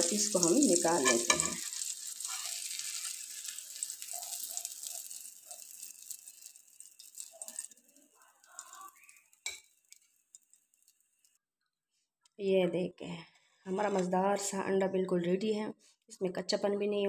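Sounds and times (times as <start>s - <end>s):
oil sizzling on a hot pan: 0.0s - 11.4s.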